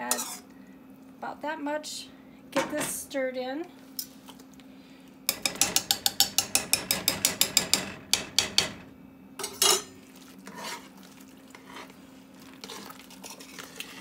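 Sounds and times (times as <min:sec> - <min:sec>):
whisk ticking against pot: 0:05.3 - 0:08.8
wet stirring: 0:09.8 - 0:14.0.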